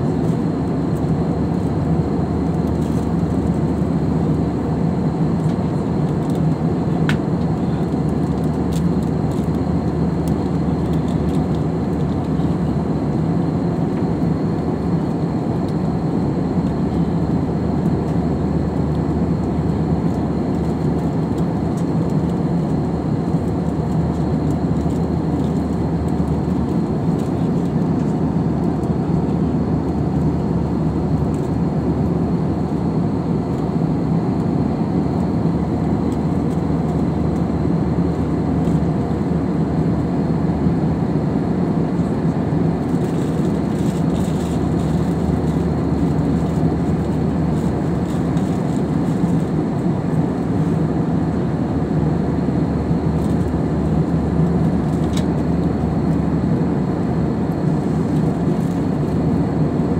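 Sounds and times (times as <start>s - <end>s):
jet engines droning: 0.0s - 59.9s.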